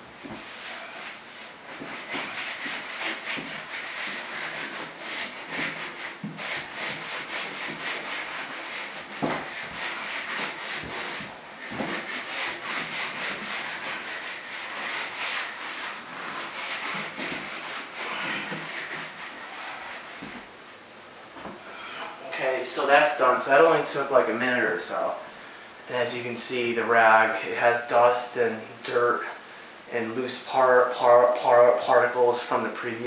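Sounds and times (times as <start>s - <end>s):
rag wiping over door: 0.0s - 20.6s.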